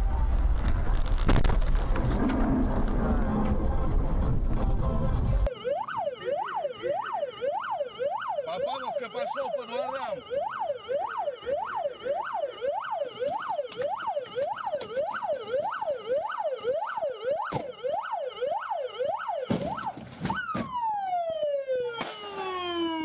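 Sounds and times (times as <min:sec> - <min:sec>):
siren falling wail: 0:05.4 - 0:23.0
police siren yelping: 0:05.5 - 0:23.0
siren harsh blast: 0:05.5 - 0:23.0.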